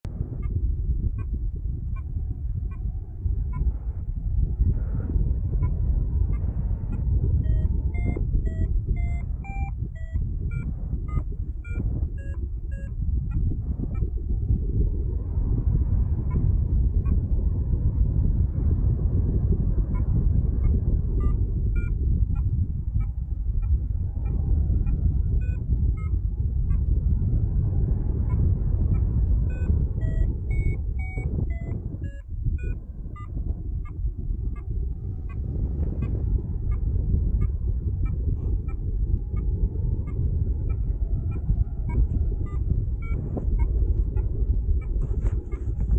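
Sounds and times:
wind rush on microphone: 0.0s - 45.9s
variometer beeping: 5.5s - 14.2s, 19.9s - 26.9s, 28.3s - 45.9s.

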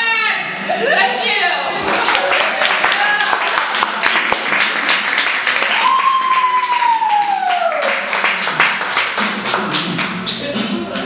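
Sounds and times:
audience applauding: 1.8s - 10.2s
long cheer gliding down: 5.5s - 8.0s.

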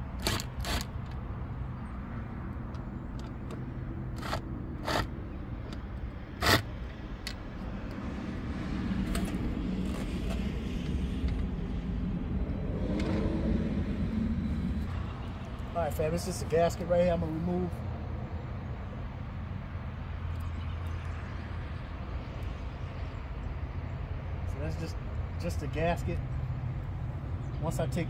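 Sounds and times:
low steady rumble: 0.0s - 17.6s.

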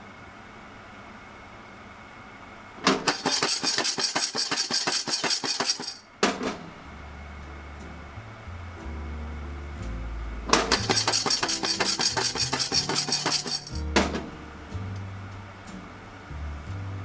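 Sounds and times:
coffee beans rattling in saucepan: 3.1s - 6.1s, 10.7s - 13.8s
pan clattering onto stove grate: 10.5s - 14.2s.

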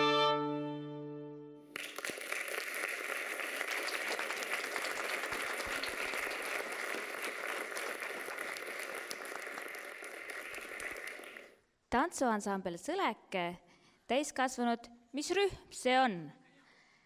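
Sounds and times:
audience applauding: 1.7s - 11.6s.

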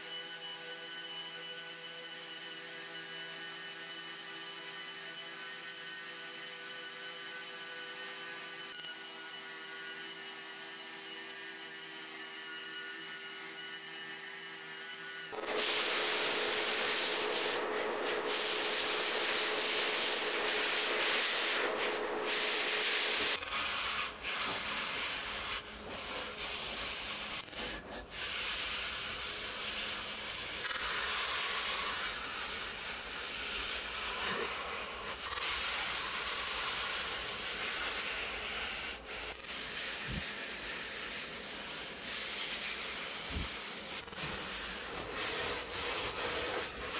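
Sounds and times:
orbital sander whining: 6.0s - 41.5s
scratchy sanding noise: 15.3s - 46.9s
hand sanding pad rubbing metal: 15.4s - 46.9s.

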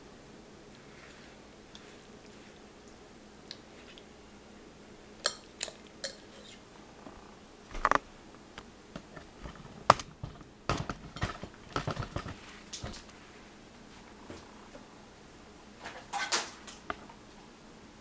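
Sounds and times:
sharp fork clink: 5.2s - 6.4s
fork clicking and scraping on plate: 5.3s - 6.6s.

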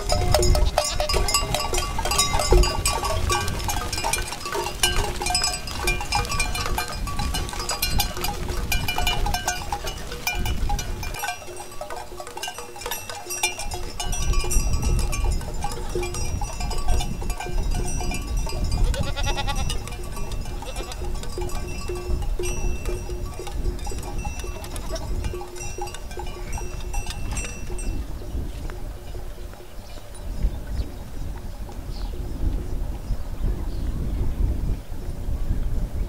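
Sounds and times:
sheep and goats bleating: 0.0s - 16.2s, 18.4s - 22.0s, 23.8s - 27.8s
tinkling notes: 0.0s - 28.2s.

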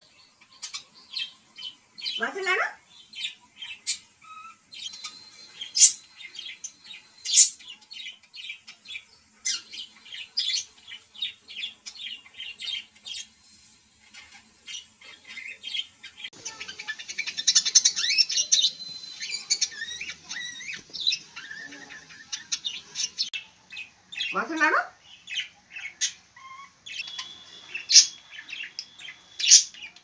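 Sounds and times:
budgerigar chirping and warbling: 2.0s - 6.1s, 7.2s - 7.8s, 14.2s - 30.0s.

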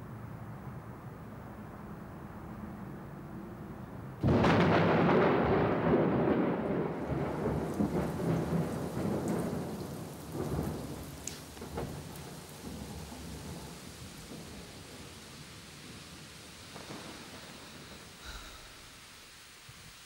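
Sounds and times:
rain: 0.0s - 20.0s
thunder rumbling: 4.2s - 20.0s.

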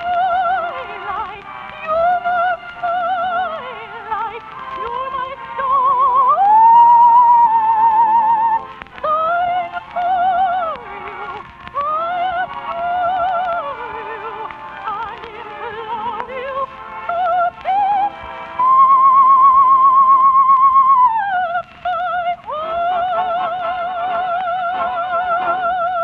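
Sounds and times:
soprano singing with vibrato: 0.0s - 26.0s.

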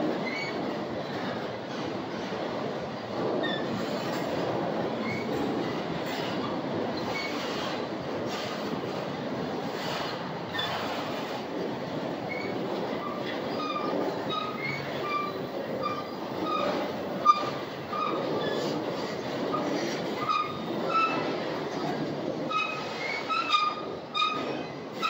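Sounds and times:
sharp clack of train: 0.0s - 25.0s
train wheels rumbling on rail: 0.0s - 25.0s
train wheels squealing: 0.2s - 0.7s, 3.4s - 4.2s, 5.0s - 8.7s, 9.7s - 11.4s, 12.2s - 21.9s, 22.5s - 25.0s.

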